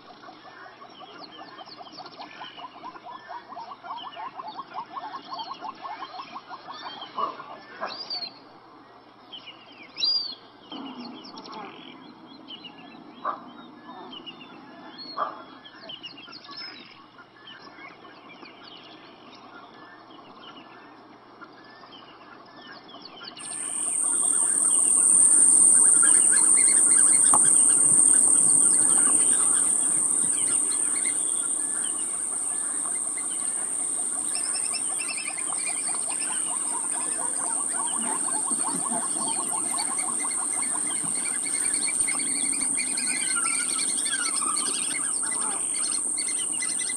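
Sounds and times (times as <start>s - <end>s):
birds chirping: 23.4s - 46.9s
high-pitched insect buzz: 23.4s - 46.9s.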